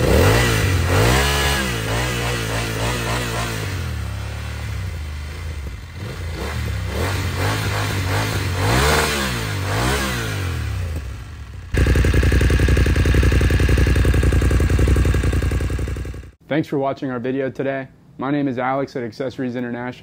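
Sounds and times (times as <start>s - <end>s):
motorcycle engine idling: 0.0s - 16.4s
motorcycle engine revving: 0.0s - 16.4s.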